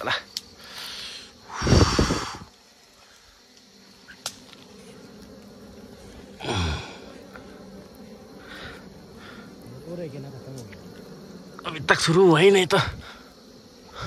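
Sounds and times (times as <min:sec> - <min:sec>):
person breathy burst: 0:00.7 - 0:02.5, 0:06.4 - 0:07.1
person sighing: 0:06.4 - 0:07.1.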